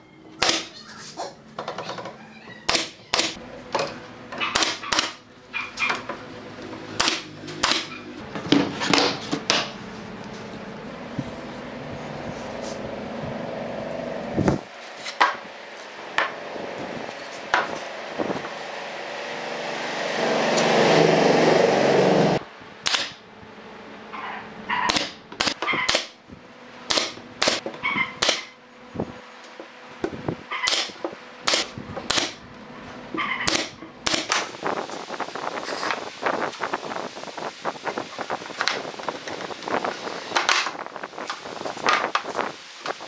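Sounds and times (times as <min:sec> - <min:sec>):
nail gun firing into wood: 0:07.0 - 0:07.9, 0:22.8 - 0:23.2, 0:24.9 - 0:26.2, 0:26.9 - 0:27.6, 0:28.2 - 0:28.6, 0:30.6 - 0:32.4, 0:33.5 - 0:34.4.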